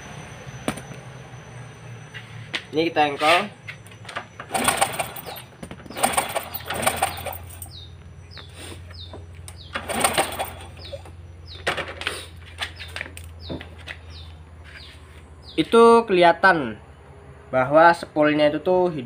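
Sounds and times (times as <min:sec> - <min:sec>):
motorcycle engine kick starting: 0:04.0 - 0:07.9, 0:08.9 - 0:12.2.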